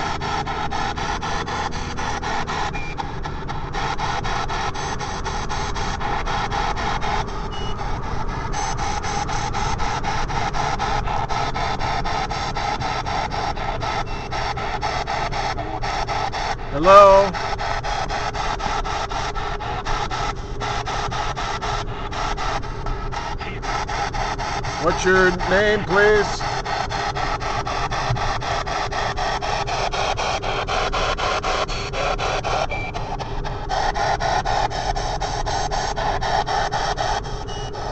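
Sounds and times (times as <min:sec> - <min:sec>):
car road rumble: 0:00.0 - 0:28.7
radio static chopped into bursts: 0:09.0 - 0:17.8, 0:23.2 - 0:27.4
radio sweeping static stutter: 0:23.3 - 0:26.5.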